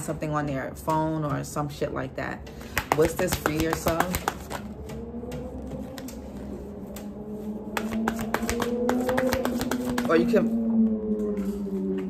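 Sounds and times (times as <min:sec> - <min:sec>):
cards being shuffled: 0:07.8 - 0:10.2.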